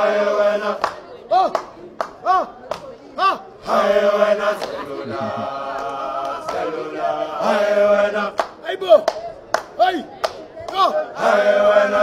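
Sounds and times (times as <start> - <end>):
group singing a hymn: 0.0 - 1.5, 3.2 - 9.0, 10.8 - 12.0.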